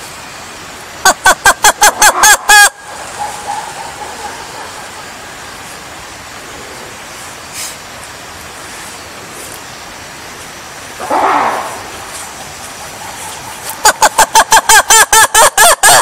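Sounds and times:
lemur calling harsh pulses: 1.0 - 7.8, 10.8 - 16.0
lemur wavering cry: 1.1 - 5.5, 11.0 - 16.0.

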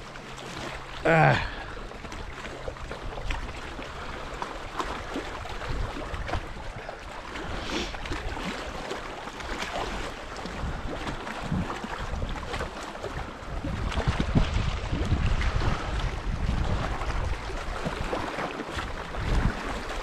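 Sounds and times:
wind rumble on microphone: 1.0 - 20.0
waves splashing on rocks: 4.8 - 13.2.

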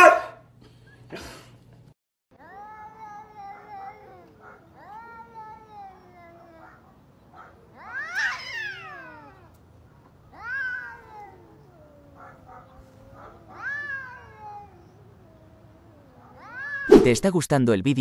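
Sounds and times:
cats yowling: 2.4 - 16.9
cat low wail: 2.4 - 17.0.

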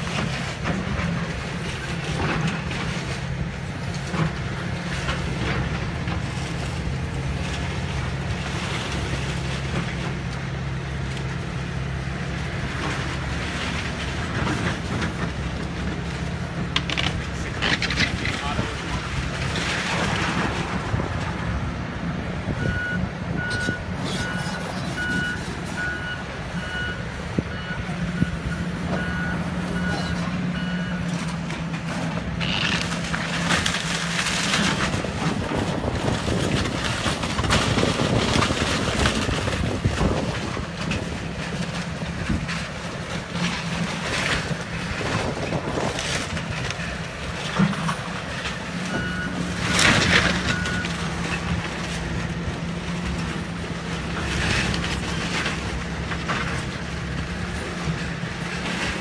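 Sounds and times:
excavator diesel engine running: 0.0 - 59.0
timber crashing and crunching: 31.8 - 48.6, 49.4 - 57.5.

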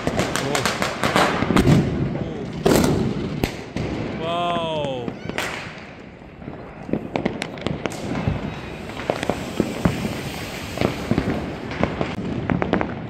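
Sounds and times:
firecrackers cracking and banging: 0.0 - 13.0
background crackle: 4.7 - 13.0.

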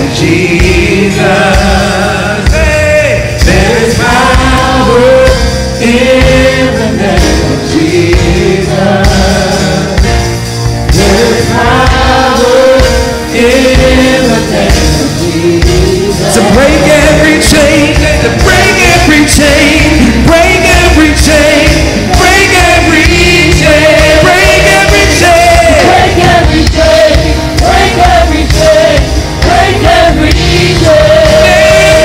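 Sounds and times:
bass and drums: 0.0 - 32.0
singers with full band: 0.0 - 32.0.

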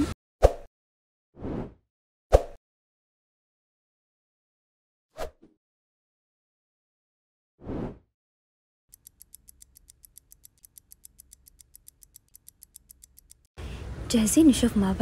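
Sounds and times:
fast clock ticking: 8.9 - 13.5.

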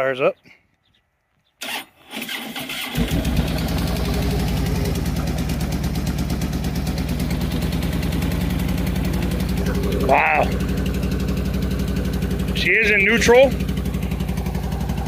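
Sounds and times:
electric starter cranking: 1.6 - 5.3
motorcycle engine idling: 2.8 - 15.0.

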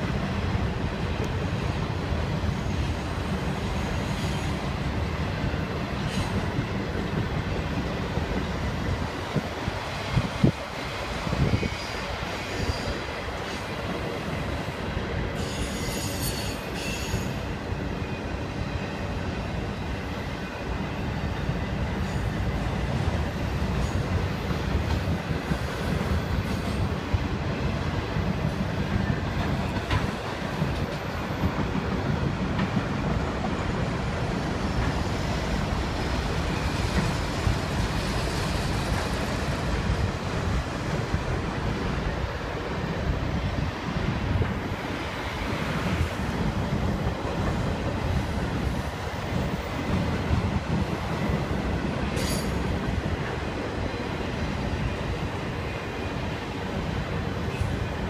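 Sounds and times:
train wheels clattering on rail: 0.0 - 58.0
high wheel squeal: 15.4 - 17.5.

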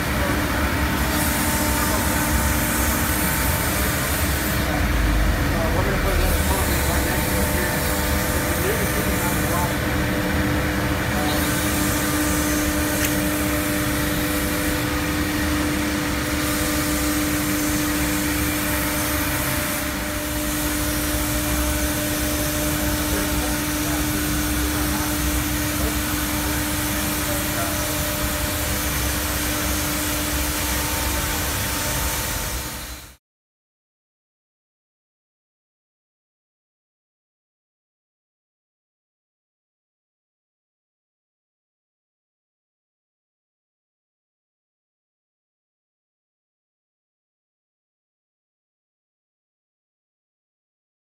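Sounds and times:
cnc router and vacuum humming: 0.0 - 33.2.

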